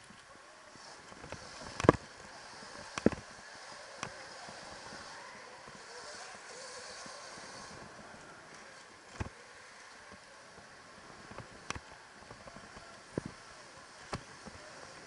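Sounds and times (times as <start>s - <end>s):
tyres and air hissing: 0.8s - 10.1s.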